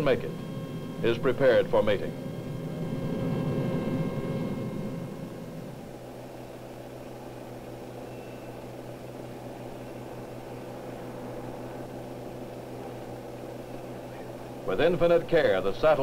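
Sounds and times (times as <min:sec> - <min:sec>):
low hum with hiss: 0:00.0 - 0:16.0.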